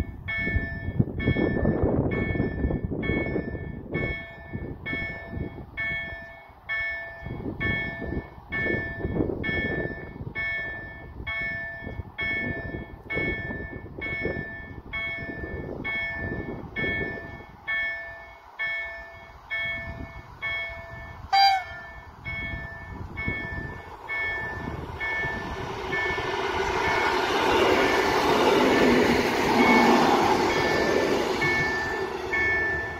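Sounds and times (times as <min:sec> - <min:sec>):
wind buffeting microphone: 0:00.0 - 0:17.9, 0:19.3 - 0:32.9
level-crossing warning bell: 0:00.0 - 0:32.9
short high tone: 0:21.4 - 0:22.0.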